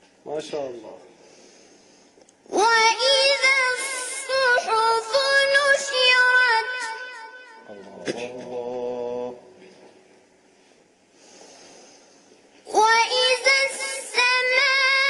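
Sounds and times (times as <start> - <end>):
boy reciting melodically: 2.5 - 9.5, 12.6 - 15.0.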